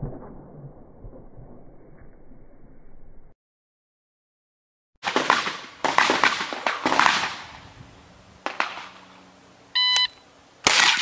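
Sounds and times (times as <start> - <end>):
short electronic beep: 9.8 - 10.2.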